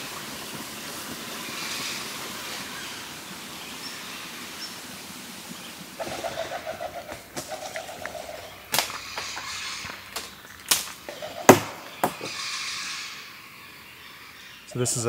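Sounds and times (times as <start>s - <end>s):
soft hiss: 0.0s - 15.0s
buzzy pulsing bird call: 6.0s - 10.1s, 11.1s - 15.0s.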